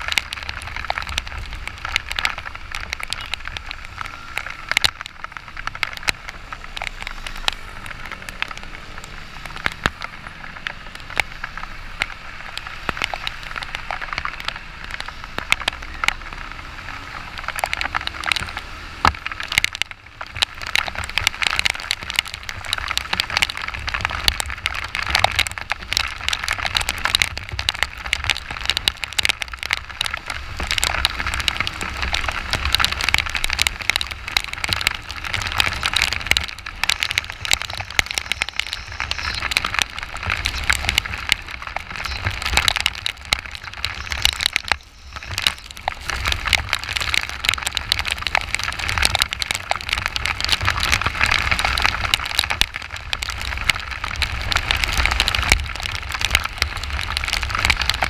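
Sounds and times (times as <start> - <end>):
rain hitting camera: 0.0 - 58.0
wind and road spray hiss: 3.4 - 25.9.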